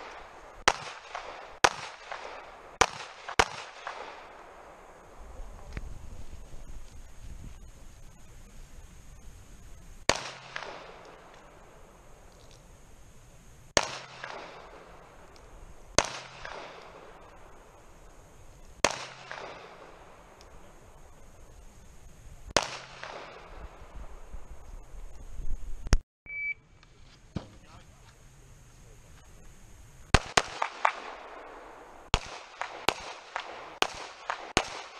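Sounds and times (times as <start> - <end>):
pistol shots with echo: 0.0 - 5.2, 10.1 - 11.8, 13.8 - 18.2, 18.8 - 20.9, 22.6 - 23.9, 30.1 - 34.9.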